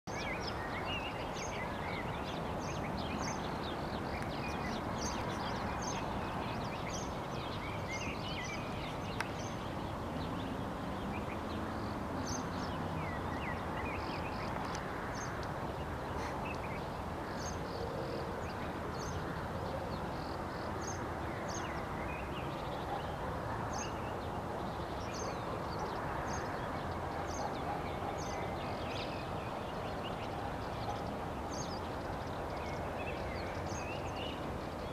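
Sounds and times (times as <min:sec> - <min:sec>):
small birds chirping: 0:00.1 - 0:17.8.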